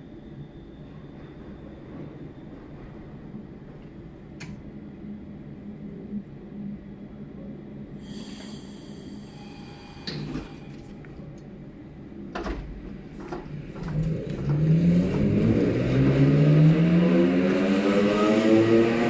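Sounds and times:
electric train traction whine: 0:08.0 - 0:11.5.

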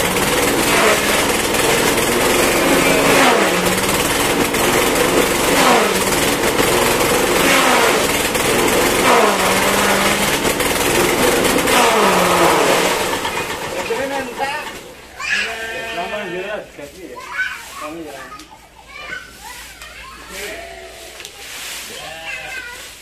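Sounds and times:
petrol engine running hard: 0:00.0 - 0:15.1
blades whirring and shredding grass: 0:00.0 - 0:15.4, 0:16.7 - 0:23.0.

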